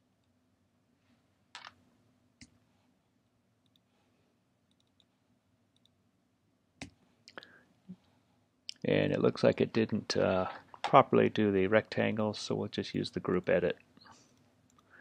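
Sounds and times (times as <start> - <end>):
faint low hum: 0.0 - 15.0
computer mouse clicks: 4.7 - 5.1.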